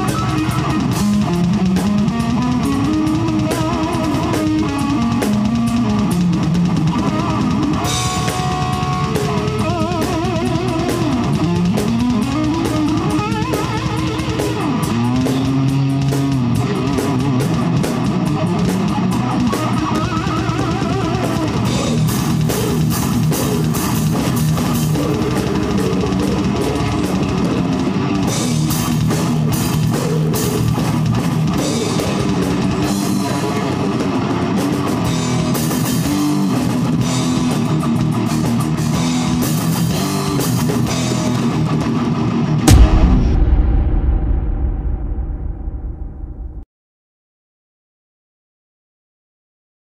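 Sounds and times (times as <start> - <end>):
distorted electric guitars: 0.0 - 46.6
drum kit: 0.0 - 46.6
cymbal hits: 42.7 - 46.6.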